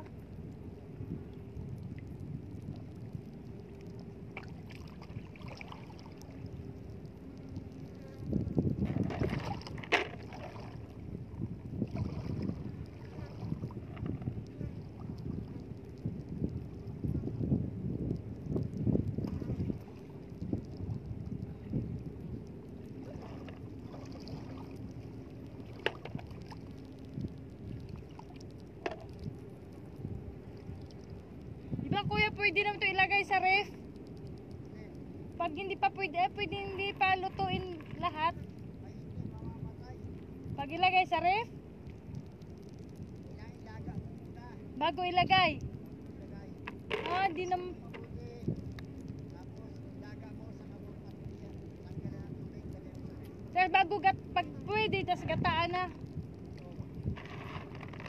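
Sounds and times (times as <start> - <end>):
wind rumbling on microphone: 0.0 - 58.0
seawater sloshing and lapping: 1.8 - 17.2, 18.5 - 34.7, 56.4 - 58.0
faint clicks: 24.5 - 31.5, 33.6 - 35.4, 41.8 - 44.4, 45.6 - 58.0.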